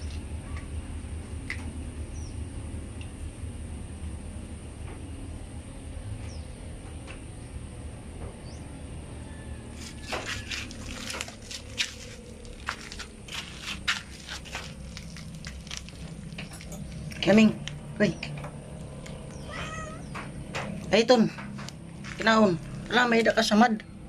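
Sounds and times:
low steady hum: 0:00.0 - 0:24.0
clicks and scuffles on dirt floor: 0:09.7 - 0:18.4, 0:19.0 - 0:23.3.

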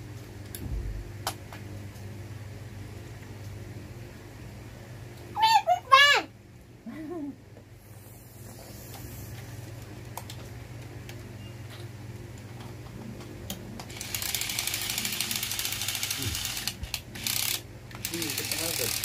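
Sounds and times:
steady low hum: 0:00.0 - 0:19.0
toy gear motors whirring and clicking: 0:13.9 - 0:19.0.

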